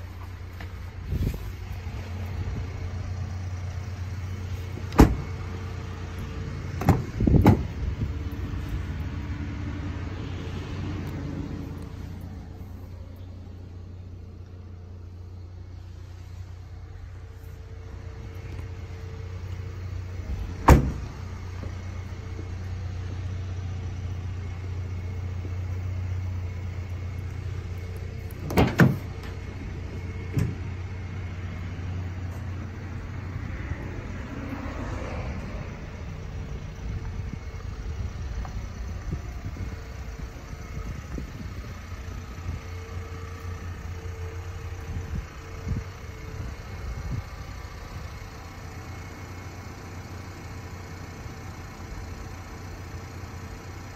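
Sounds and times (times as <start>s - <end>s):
truck idling hum: 0.0s - 53.9s
door slamming: 5.0s - 5.3s, 6.8s - 7.7s, 20.6s - 21.1s, 28.4s - 29.1s.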